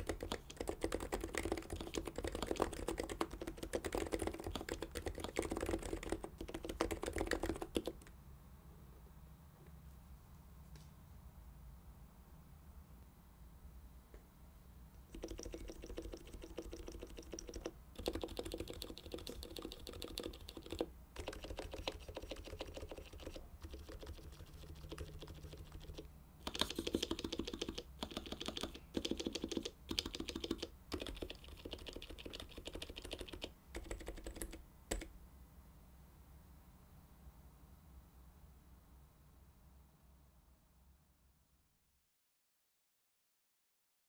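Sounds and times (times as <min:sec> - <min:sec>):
keyboard keys clicking rapidly: 0:00.0 - 0:08.1, 0:15.1 - 0:35.1.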